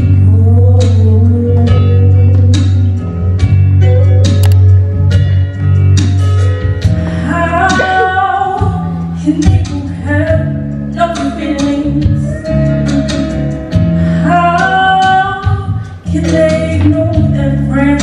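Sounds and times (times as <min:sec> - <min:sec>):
girl singing: 0:07.3 - 0:10.4.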